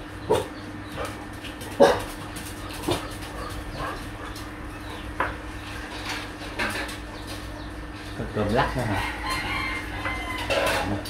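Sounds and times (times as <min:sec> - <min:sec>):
dog barking: 0:01.8 - 0:02.1.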